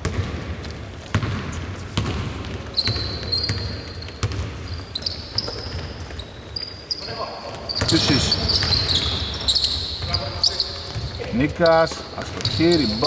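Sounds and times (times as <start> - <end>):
basketball bouncing: 0.0 - 6.2, 7.8 - 11.4
sneakers squeaking on floor: 0.0 - 13.0.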